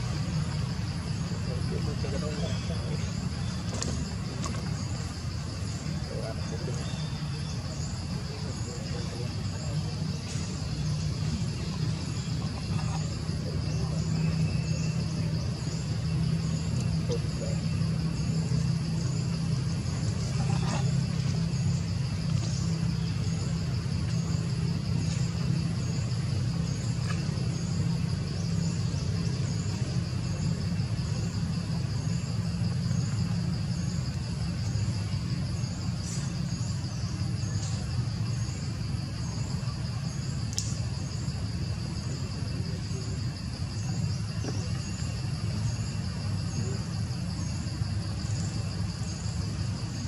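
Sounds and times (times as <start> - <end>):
high insect drone: 0.0 - 50.0
faint tick: 40.5 - 40.7.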